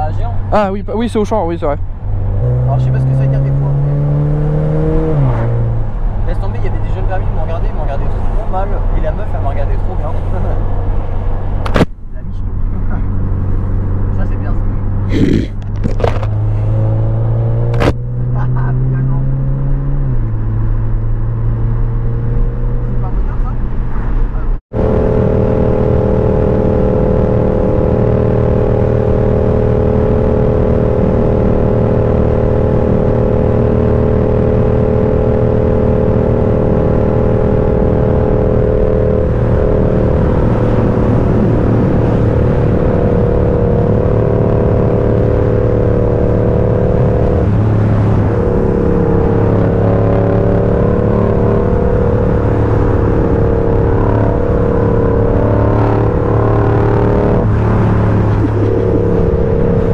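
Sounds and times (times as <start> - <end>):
vehicle engine running: 24.7 - 59.9.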